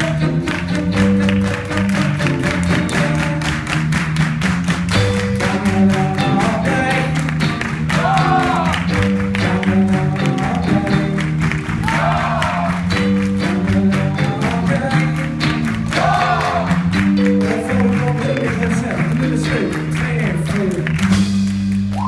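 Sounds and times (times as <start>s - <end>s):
man singing: 0.0s - 0.8s, 5.2s - 11.4s, 13.4s - 16.6s, 17.3s - 21.0s
rock band playing live: 0.0s - 22.0s.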